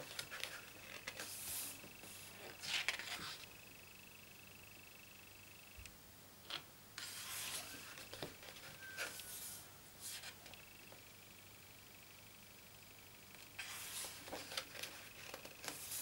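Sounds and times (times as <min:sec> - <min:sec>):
hand rubbing paper page: 0:00.0 - 0:03.5, 0:07.0 - 0:10.4, 0:13.6 - 0:16.0
paper page turning: 0:00.0 - 0:03.5, 0:07.0 - 0:10.4, 0:13.6 - 0:16.0.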